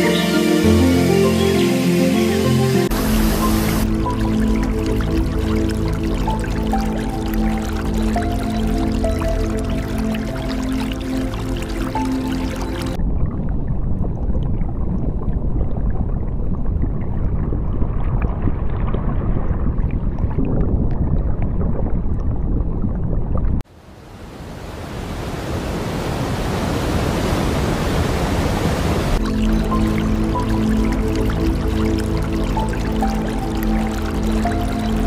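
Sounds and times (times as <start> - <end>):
waterfall rushing: 0.0 - 13.0, 24.1 - 35.0
muffled low water rumble: 2.9 - 23.6, 29.0 - 35.0.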